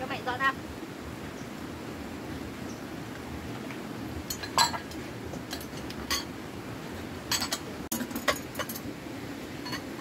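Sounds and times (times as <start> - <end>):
utensils clinking against bowls: 4.3 - 4.9, 5.5 - 6.3, 7.3 - 8.9, 9.6 - 9.9.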